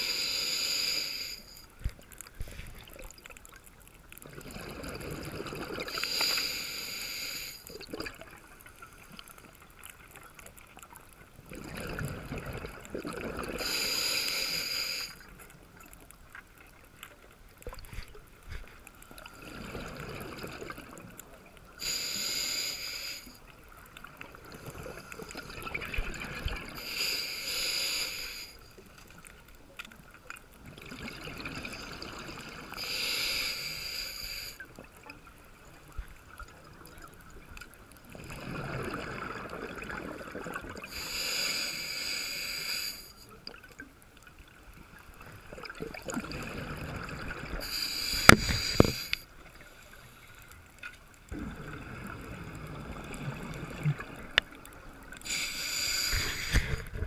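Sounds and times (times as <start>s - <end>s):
hissing regulator inhale: 0.0s - 1.7s, 5.8s - 7.7s, 13.6s - 15.3s, 21.8s - 23.5s, 26.7s - 28.7s, 32.7s - 34.7s, 40.8s - 43.3s, 47.6s - 50.4s, 55.2s - 57.0s
burbling exhaled bubbles: 4.2s - 6.0s, 7.7s - 8.4s, 11.4s - 13.7s, 19.3s - 21.1s, 24.3s - 26.8s, 38.1s - 41.0s, 45.5s - 47.7s, 51.3s - 54.6s.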